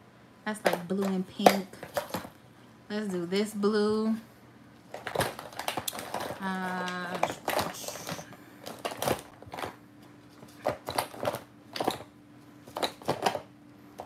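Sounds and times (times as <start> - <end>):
plastic vials clattering: 4.9 - 9.7.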